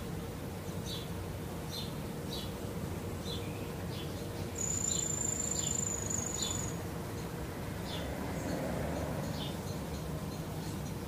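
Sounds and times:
insect trilling: 0:04.6 - 0:06.8.

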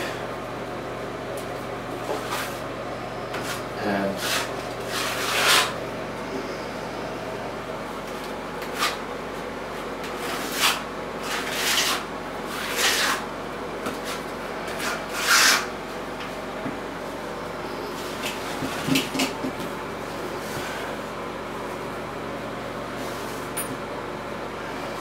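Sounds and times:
faint steady hum: 0:00.0 - 0:10.5
hands scraping mesh tape: 0:04.2 - 0:05.7, 0:08.6 - 0:09.0, 0:10.1 - 0:13.2, 0:14.0 - 0:15.7.

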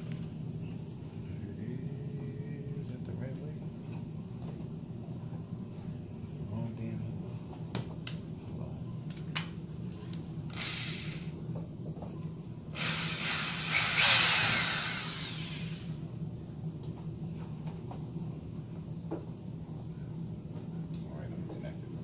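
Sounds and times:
cordless drill whining: 0:10.5 - 0:11.3, 0:12.8 - 0:16.0.

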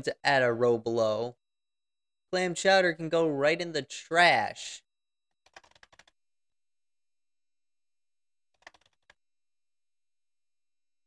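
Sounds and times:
keyboard typing: 0:05.4 - 0:06.2, 0:08.5 - 0:09.2.

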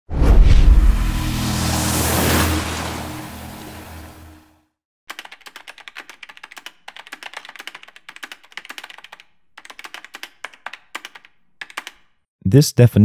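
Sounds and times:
whoosh with low rumble: 0:00.1 - 0:04.4
computer keyboard typing: 0:05.1 - 0:12.2.

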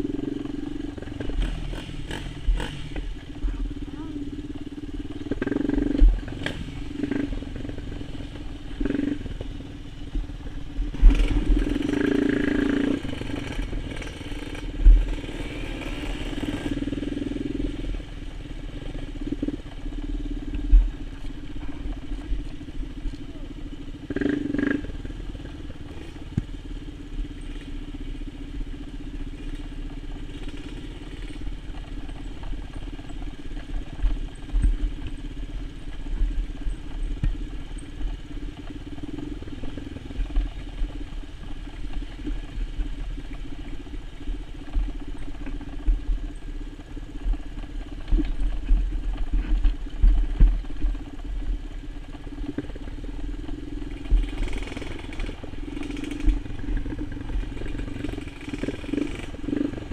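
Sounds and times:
quad bike engine revving: 0:00.0 - 0:20.4, 0:22.2 - 0:28.2, 0:29.0 - 0:33.8, 0:52.5 - 0:59.9.

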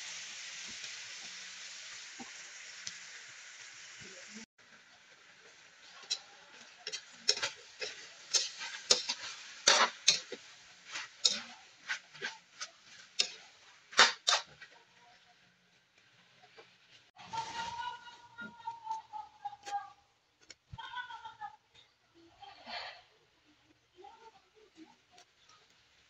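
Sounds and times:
metal spatula scraping metal pot: 0:05.8 - 0:14.8.

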